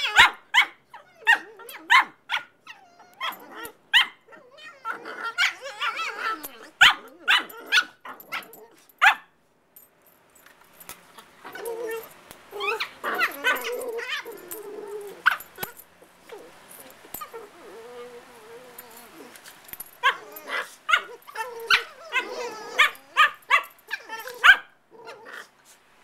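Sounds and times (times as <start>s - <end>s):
puppies yelping and barking: 0.0s - 8.8s, 11.4s - 25.5s
puppies grumbling: 2.7s - 8.7s, 11.2s - 25.5s.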